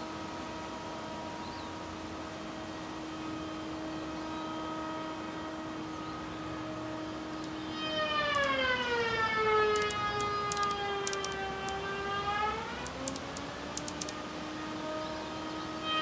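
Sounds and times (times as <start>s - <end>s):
sharp ticks: 8.3s - 8.6s, 9.8s - 11.8s, 12.8s - 14.2s.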